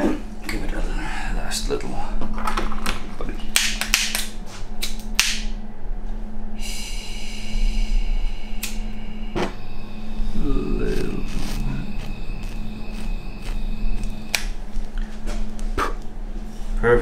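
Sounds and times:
gas hissing: 0:06.6 - 0:15.0.

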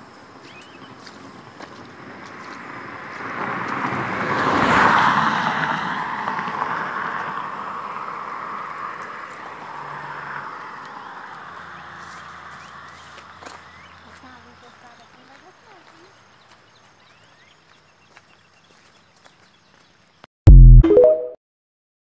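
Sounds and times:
road vehicle passing: 0:00.8 - 0:17.0.

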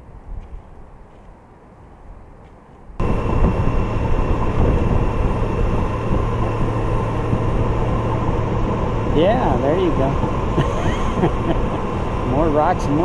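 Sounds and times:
wind and road noise: 0:00.0 - 0:13.0
faint low rumble: 0:03.0 - 0:13.0
motorcycle engine at road speed: 0:03.0 - 0:13.0.

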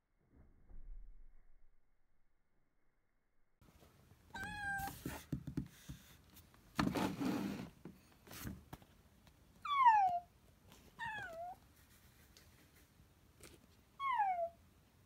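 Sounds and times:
kitten meowing: 0:04.3 - 0:05.0, 0:11.0 - 0:11.6, 0:14.0 - 0:14.6.

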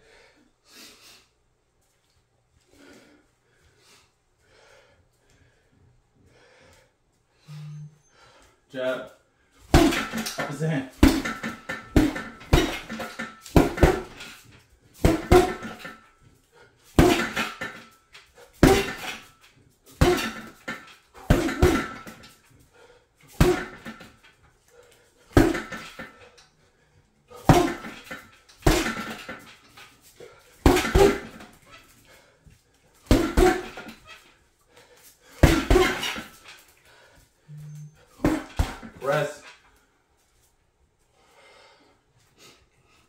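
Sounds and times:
punches thudding on heavy bag: 0:09.7 - 0:14.4, 0:15.0 - 0:16.0, 0:16.9 - 0:17.9, 0:18.6 - 0:19.2, 0:19.9 - 0:22.3, 0:23.3 - 0:24.2, 0:25.3 - 0:26.1, 0:27.3 - 0:29.5, 0:30.6 - 0:31.6, 0:33.0 - 0:34.0, 0:35.4 - 0:36.4, 0:38.2 - 0:39.0.

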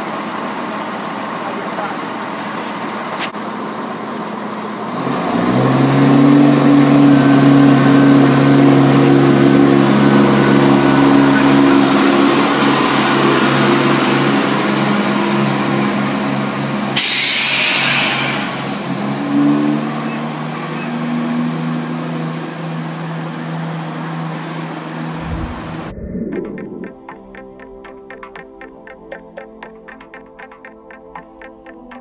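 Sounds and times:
train diesel engines droning: 0:00.0 - 0:25.3
loud hiss: 0:17.0 - 0:18.7.

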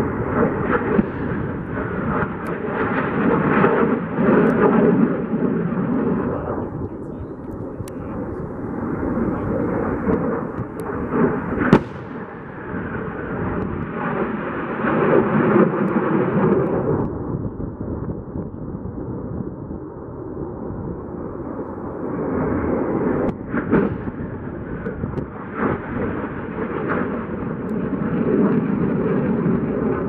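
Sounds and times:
sharp crack: 0:00.0 - 0:04.7, 0:09.2 - 0:14.4
jet engine passing overhead: 0:00.0 - 0:30.0.

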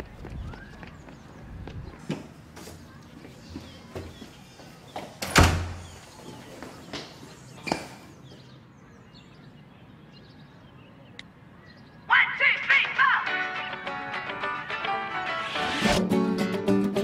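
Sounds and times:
front door shutting: 0:05.2 - 0:06.0
music: 0:12.8 - 0:17.0.

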